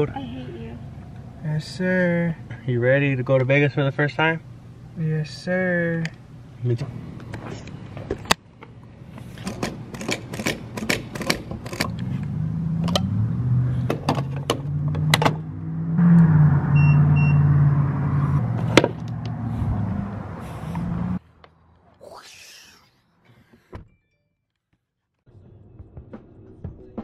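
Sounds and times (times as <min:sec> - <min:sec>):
short beeps: 0:16.7 - 0:17.5.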